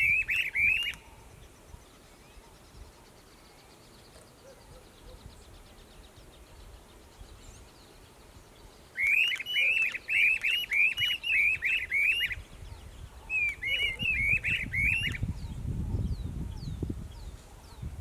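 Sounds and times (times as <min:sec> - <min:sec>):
birds duetting: 0:00.0 - 0:17.9.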